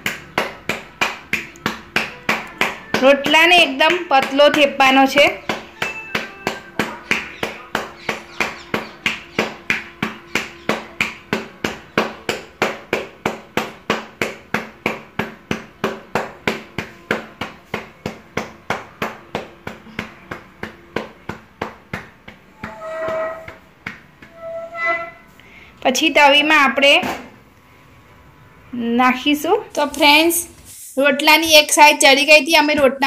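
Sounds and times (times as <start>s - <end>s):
dough patted between palms: 0.0s - 24.4s.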